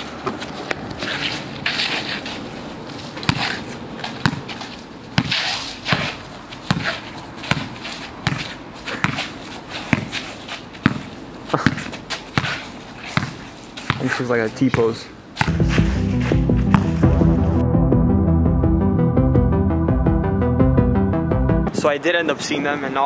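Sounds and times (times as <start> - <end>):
scuffing footsteps: 0.0 - 17.3
basketball bouncing on asphalt: 3.1 - 15.6, 16.6 - 17.0.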